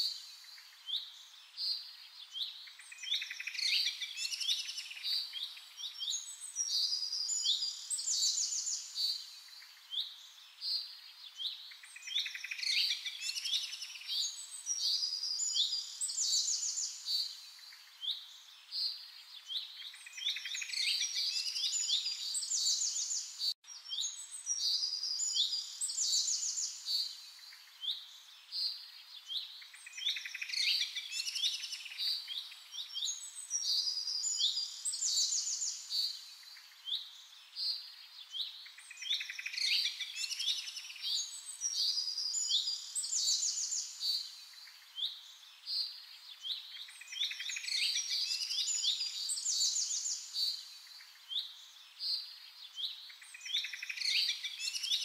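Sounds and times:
songbirds chirping and trilling: 0.0 - 55.0.

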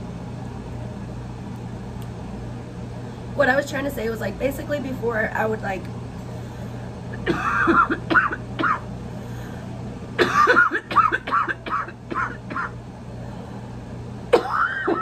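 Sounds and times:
woman coughing hard: 7.2 - 8.9, 10.2 - 12.8, 14.3 - 15.0.

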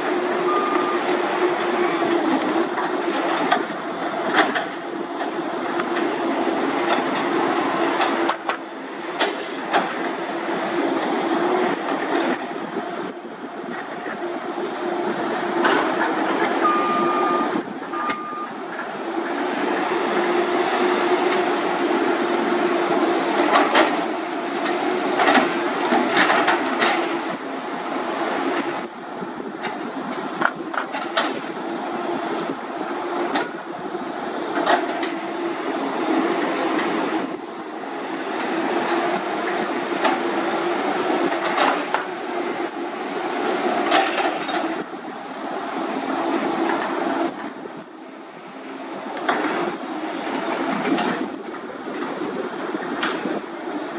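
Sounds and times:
diesel engine and hydraulic drone: 0.0 - 53.9
metallic clanks and squeaks: 13.0 - 13.6.

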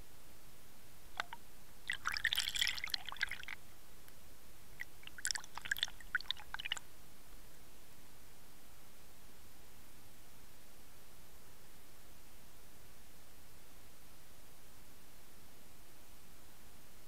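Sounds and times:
faint steady hiss: 0.0 - 17.0
water bubbling and crackling: 1.2 - 3.6, 4.8 - 6.8.

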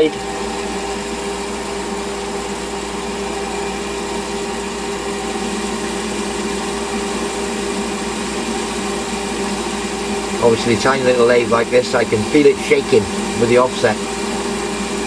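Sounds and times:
lathe motor and gear whine: 0.0 - 15.0
hiss of lathe cutting: 6.8 - 15.0.

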